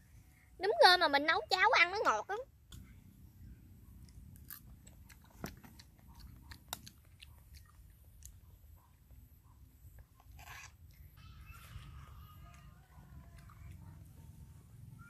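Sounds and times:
person chewing: 0:04.0 - 0:08.7.

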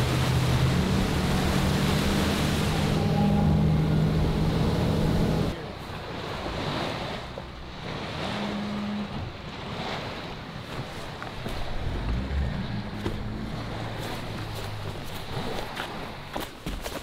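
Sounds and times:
boat engine running: 0:00.0 - 0:16.7
rushing water: 0:00.0 - 0:17.0
wind: 0:00.0 - 0:17.0.

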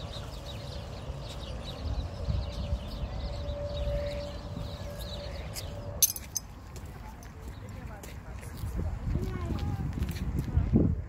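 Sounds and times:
small birds chirping: 0:00.0 - 0:08.7
wind buffeting microphone: 0:01.4 - 0:11.0.

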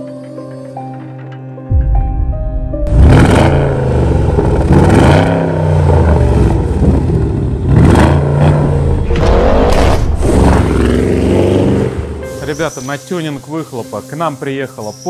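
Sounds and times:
car engine revving: 0:02.9 - 0:12.4.

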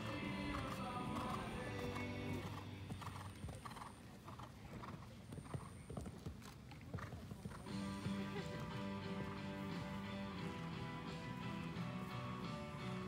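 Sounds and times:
music: 0:00.0 - 0:03.1, 0:07.6 - 0:13.0
horse hoofbeats on sand: 0:00.0 - 0:13.0.

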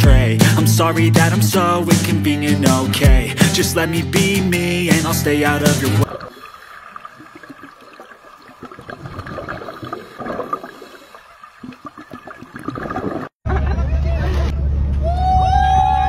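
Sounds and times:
underwater bubbling of exhaled air: 0:06.0 - 0:13.4.

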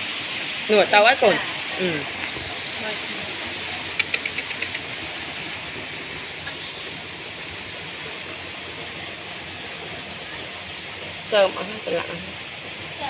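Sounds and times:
sharp ticks: 0:03.9 - 0:05.0.

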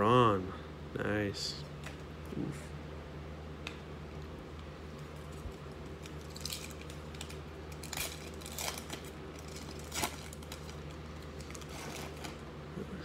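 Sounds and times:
foil wrapper crinkling: 0:05.2 - 0:12.4
foil pack tearing open: 0:06.0 - 0:12.4.

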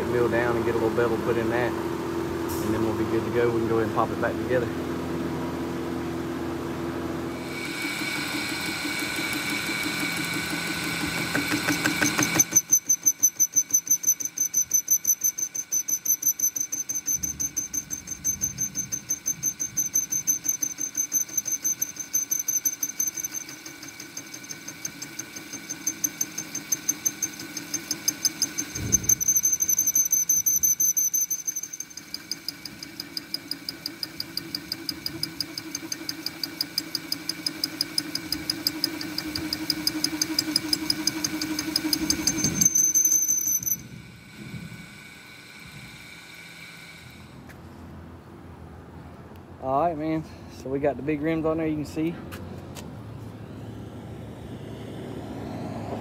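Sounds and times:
metal lathe humming: 0:07.2 - 0:47.6
lathe tool ticking: 0:07.4 - 0:47.3
high squeal: 0:11.1 - 0:45.9.

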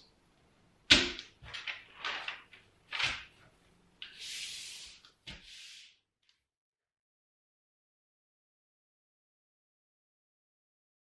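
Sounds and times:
paper rustling: 0:01.4 - 0:03.5.

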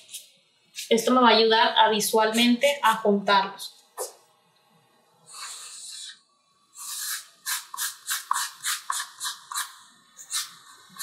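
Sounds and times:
marker scratching on paper: 0:06.8 - 0:11.0.

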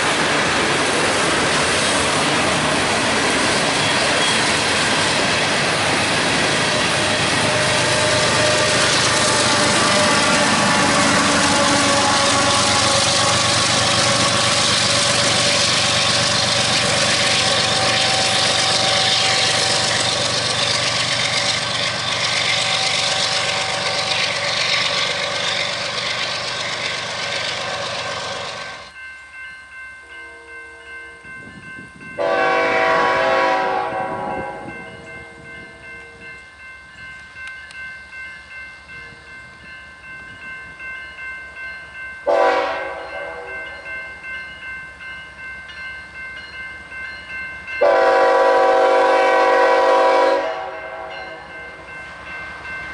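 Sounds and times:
freight train rolling on rails: 0:00.0 - 0:52.9
crossing bell ringing: 0:01.2 - 0:52.9
locomotive horn: 0:06.7 - 0:15.8, 0:17.2 - 0:20.2, 0:32.2 - 0:35.0, 0:42.3 - 0:43.6, 0:47.8 - 0:51.5.

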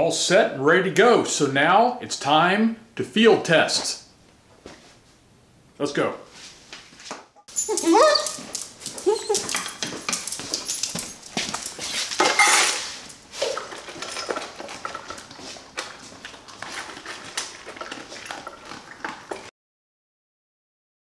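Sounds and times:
kibble clinking in metal bowls: 0:07.5 - 0:15.3
dogs eating from metal bowls: 0:07.5 - 0:19.5.

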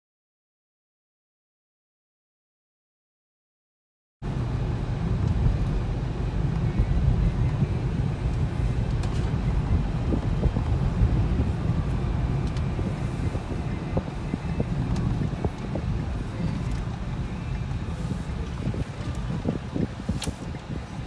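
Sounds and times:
vehicle rumble: 0:04.2 - 0:21.0.

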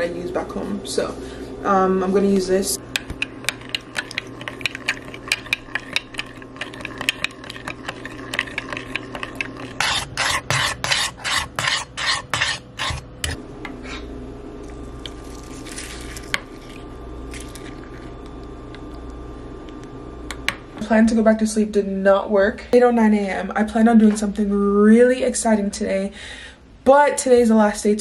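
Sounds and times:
low steady hum: 0:00.0 - 0:28.0
spoon scraping a mug: 0:03.0 - 0:13.4.

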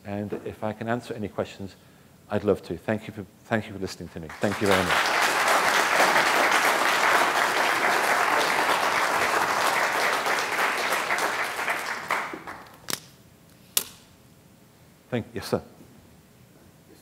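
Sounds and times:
audience applauding: 0:04.3 - 0:12.8.

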